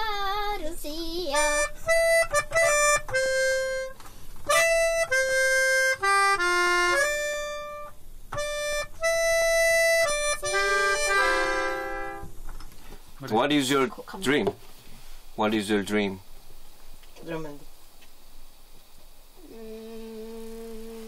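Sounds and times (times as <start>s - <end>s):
melodica playing slow melody: 1.3s - 12.3s, 19.4s - 21.0s.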